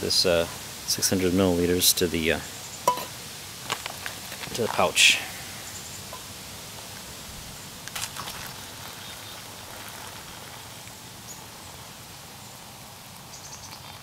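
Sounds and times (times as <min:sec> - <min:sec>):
water pouring into a pouch: 0:07.8 - 0:11.2.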